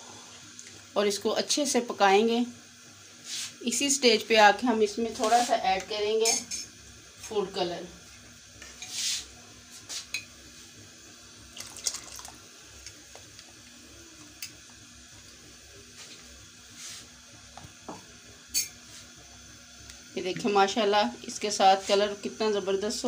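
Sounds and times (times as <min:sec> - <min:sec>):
syrup splashing: 0:11.5 - 0:13.0.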